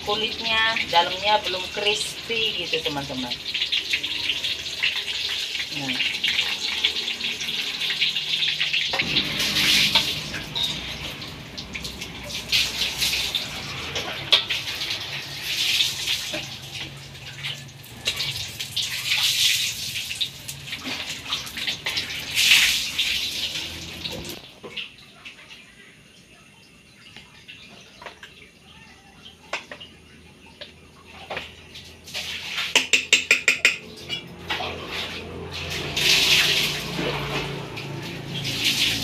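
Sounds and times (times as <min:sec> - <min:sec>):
oil sizzling with crackling pops: 0:00.1 - 0:25.5, 0:30.6 - 0:34.2.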